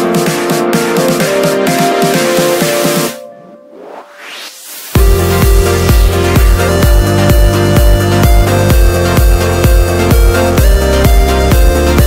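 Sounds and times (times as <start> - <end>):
electronic dance music: 0.0 - 12.0
steady kick drum: 5.0 - 12.0.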